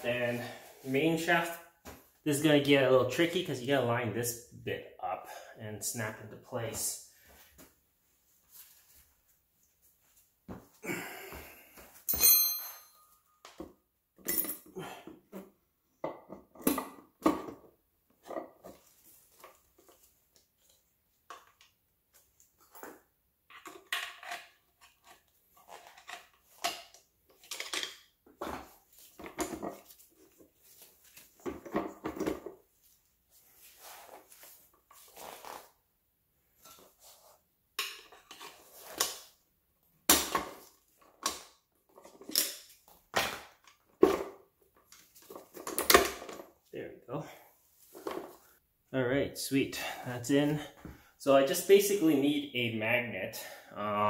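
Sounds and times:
ringing metallic clank: 0:12.1 - 0:13.2.

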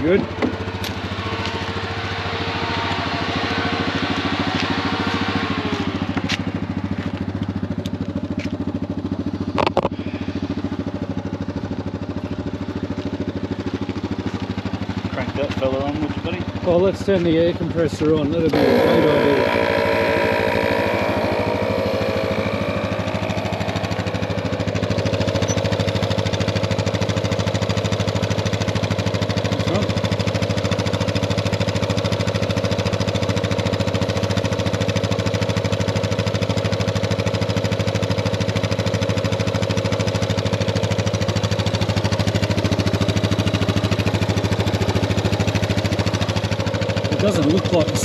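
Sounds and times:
air compressor pulsing chatter: 0:15.1 - 0:20.6, 0:29.6 - 0:30.1, 0:47.0 - 0:48.0.

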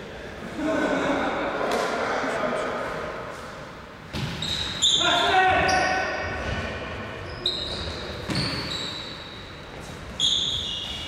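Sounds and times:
shoes squeaking on wooden floor: 0:07.2 - 0:11.0.

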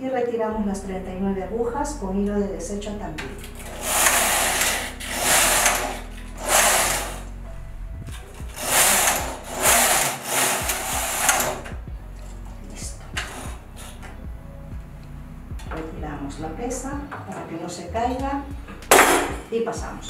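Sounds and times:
knitting machine carriage swooshing: 0:03.5 - 0:07.4, 0:08.3 - 0:11.8.

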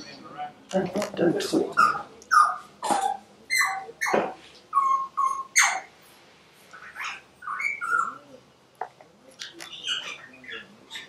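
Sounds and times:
high chirping animal calls: 0:01.7 - 0:06.0, 0:06.7 - 0:08.4, 0:09.4 - 0:11.0.

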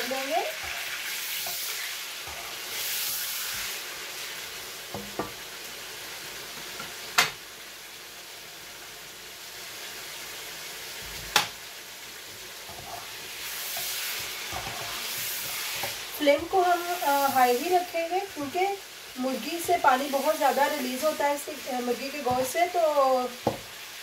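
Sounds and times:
chicken sizzling in oil: 0:00.0 - 0:24.0
spatula stirring: 0:12.7 - 0:17.1.

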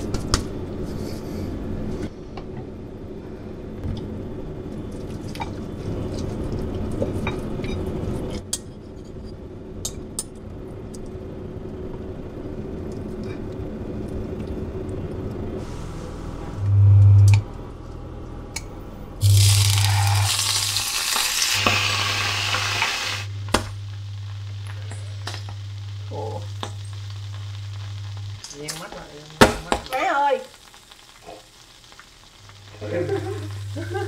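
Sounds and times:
steady low hum: 0:00.0 - 0:20.8, 0:21.5 - 0:29.4
loud low-pitched buzz: 0:15.0 - 0:28.4.

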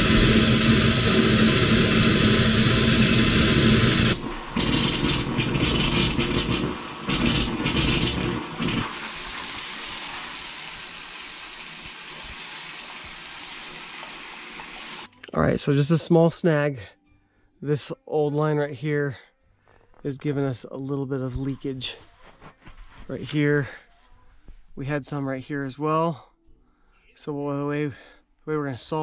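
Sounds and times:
faucet water running into sink: 0:07.4 - 0:15.1.

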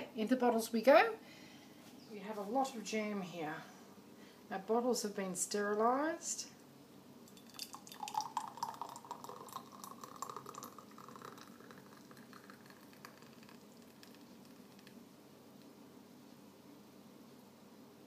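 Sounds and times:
jam bubbling and popping: 0:07.3 - 0:15.0.

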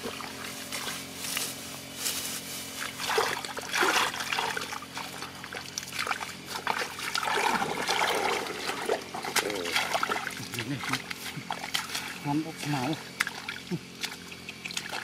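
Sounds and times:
hands sloshing in muddy water: 0:02.7 - 0:15.0
water trickling: 0:03.0 - 0:15.0.

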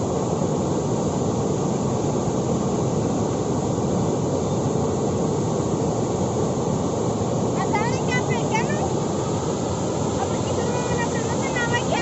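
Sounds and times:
water rushing over a dam: 0:00.0 - 0:12.0.

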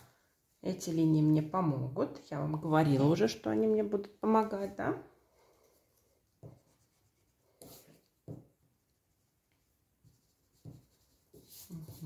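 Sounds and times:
pencil scratching on paper: 0:05.7 - 0:12.0.

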